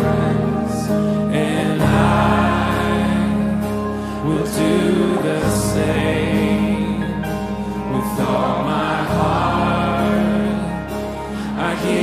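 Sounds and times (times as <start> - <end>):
song with singing voices: 0.0 - 12.0.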